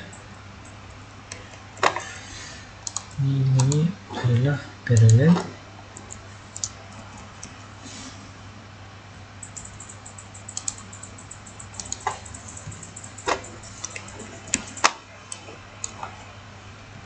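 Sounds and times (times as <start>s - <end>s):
steady low hum: 0.0s - 17.0s
keyboard keystrokes: 2.8s - 3.8s, 9.4s - 16.0s
mouse clicks: 9.4s - 16.0s.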